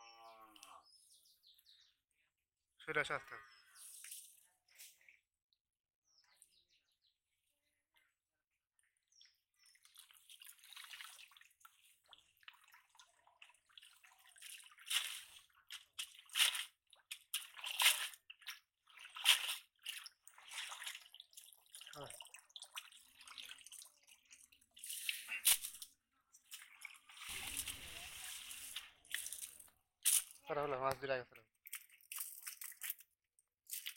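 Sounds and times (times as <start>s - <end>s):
net splashing in water: 9.9s - 30.4s, 31.6s - 33.9s
water streaming off mesh: 19.0s - 30.3s.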